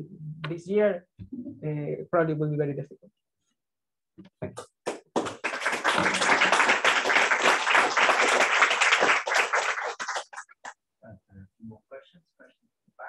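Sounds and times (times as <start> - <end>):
audience applauding: 4.9 - 10.7.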